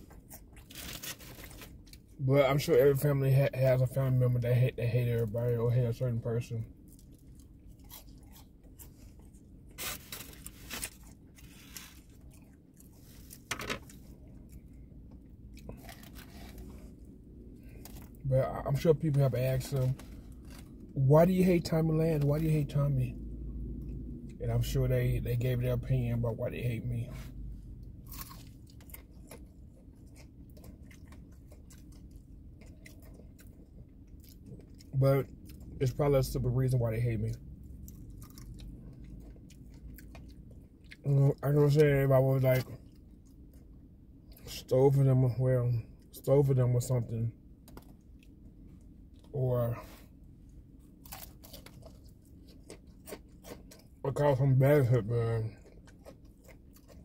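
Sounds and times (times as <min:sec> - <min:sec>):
person chewing food: 0:00.0 - 0:02.2, 0:06.7 - 0:18.2, 0:19.9 - 0:21.0, 0:27.3 - 0:35.8, 0:37.4 - 0:41.4, 0:42.7 - 0:44.5, 0:47.6 - 0:54.0, 0:54.9 - 0:57.0
low steady hum: 0:00.0 - 0:57.0
crunchy bites: 0:28.0 - 0:35.6, 0:51.0 - 0:54.0.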